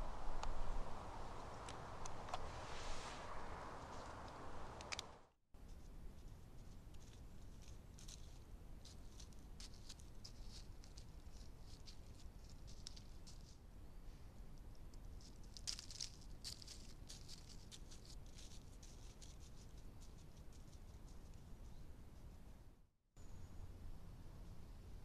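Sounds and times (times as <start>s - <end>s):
deer walking through dry leaves: 6.2s - 13.6s, 15.2s - 20.2s.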